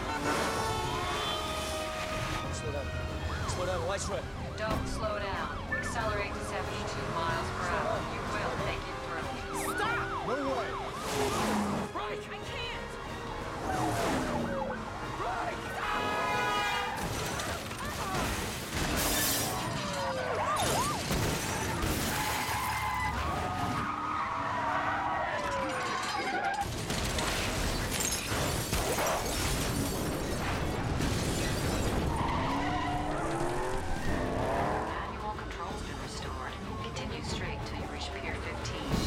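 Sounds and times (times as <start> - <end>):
tyres skidding: 0.0 - 28.6, 30.0 - 39.0
glass shattering: 17.0 - 23.0, 25.4 - 32.6.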